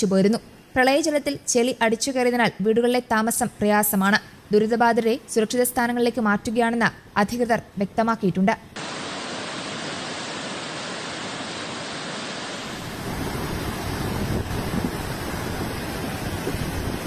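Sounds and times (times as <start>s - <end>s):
flood water rushing: 8.8s - 17.0s.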